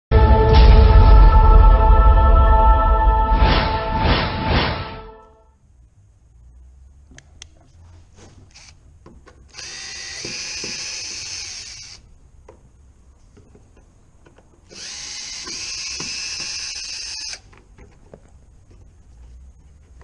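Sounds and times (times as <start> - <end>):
cordless drill whining: 8.5 - 8.8, 9.5 - 12.0, 14.7 - 17.5.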